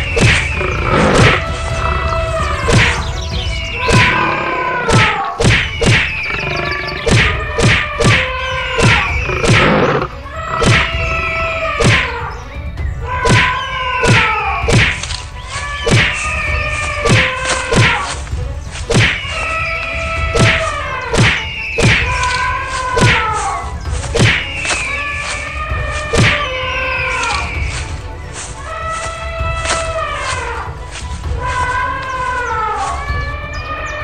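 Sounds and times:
falling tones pattern: 0.0s - 33.9s
cartoon thuds and whacks: 0.2s - 1.4s, 2.7s - 3.0s, 4.9s - 6.2s, 7.0s - 9.9s, 10.6s - 11.0s, 11.8s - 12.1s, 13.3s - 15.1s, 15.8s - 16.2s, 17.0s - 18.2s, 18.8s - 19.3s, 20.4s - 22.2s, 24.1s - 24.8s, 26.1s - 26.4s.

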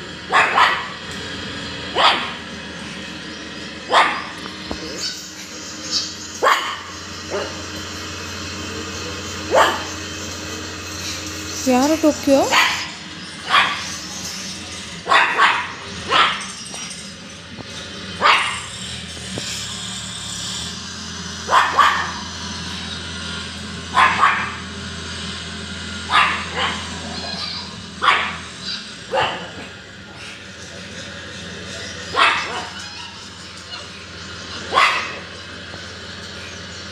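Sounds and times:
dog barking: 0.3s - 1.0s, 1.9s - 2.4s, 3.9s - 4.4s, 6.4s - 7.6s, 9.4s - 10.0s, 12.4s - 14.0s, 15.0s - 16.5s, 18.2s - 18.7s, 21.5s - 22.2s, 23.9s - 24.6s, 26.1s - 30.4s, 32.1s - 34.0s, 34.6s - 35.4s.

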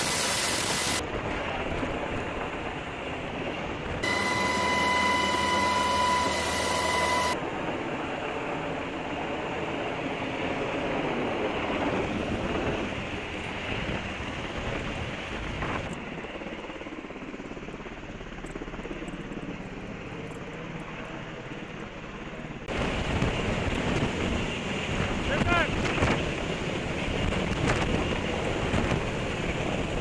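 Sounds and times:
helicopter rotor and engine: 0.0s - 30.0s
wind buffeting microphone: 22.7s - 30.0s.

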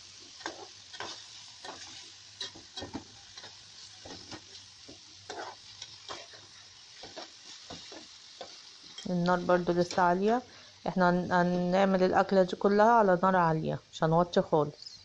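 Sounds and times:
chicken sizzling in oil: 0.0s - 13.4s
spatula scraping metal pan: 5.3s - 9.1s.

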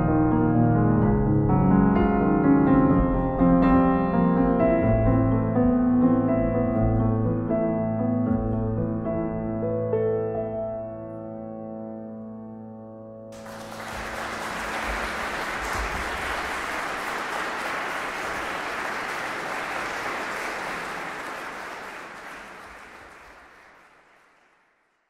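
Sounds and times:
audience applause: 13.4s - 25.0s.

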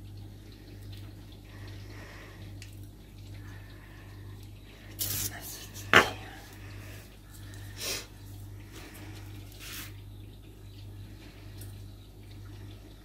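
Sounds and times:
low steady hum: 0.0s - 13.0s
soft hissing: 3.6s - 10.0s.

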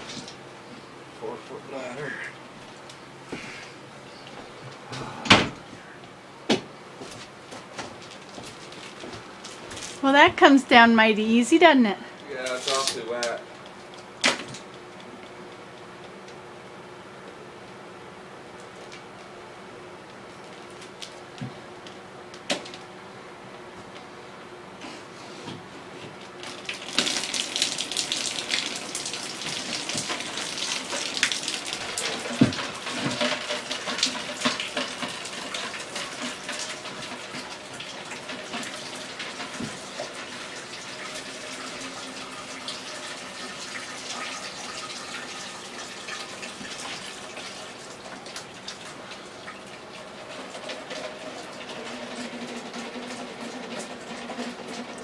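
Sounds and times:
water splashing from leaking pipe: 26.4s - 55.0s.

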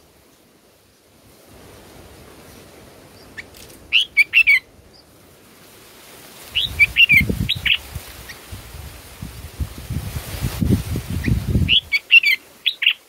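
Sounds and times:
bulbuls chirping: 3.0s - 5.2s, 6.5s - 8.5s, 11.2s - 13.0s.

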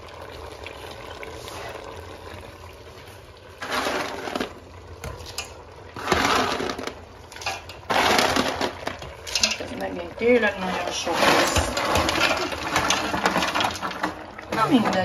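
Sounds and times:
pot of soup simmering: 0.0s - 15.0s
beans pouring into pot: 3.6s - 15.0s.

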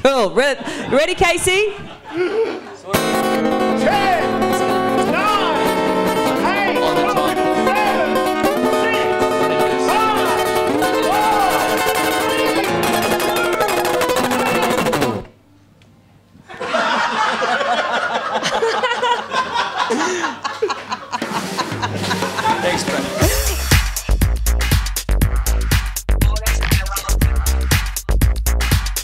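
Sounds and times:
voices and laughter: 0.4s - 3.0s
guitar music: 2.9s - 15.4s, 22.2s - 24.0s.

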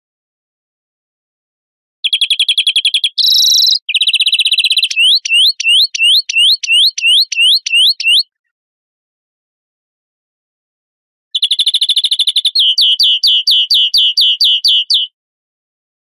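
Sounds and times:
finch song trills and whistles: 2.0s - 8.3s, 11.4s - 15.2s.

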